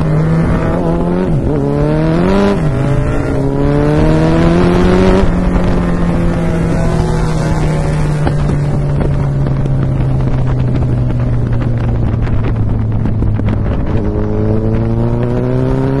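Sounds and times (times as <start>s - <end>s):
motorcycle engine: 0.0s - 16.0s
wind noise on microphone: 0.0s - 16.0s
exhaust crackles and pops: 7.7s - 15.6s.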